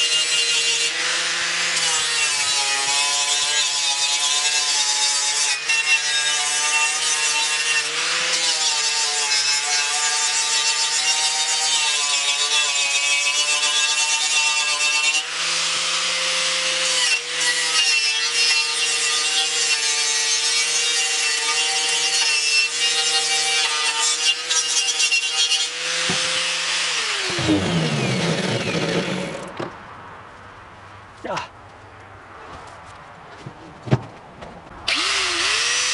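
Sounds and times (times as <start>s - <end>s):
wire brush grinder scrubbing metal: 0.0s - 29.5s
grinder motor winding down: 26.1s - 29.6s, 34.9s - 35.9s.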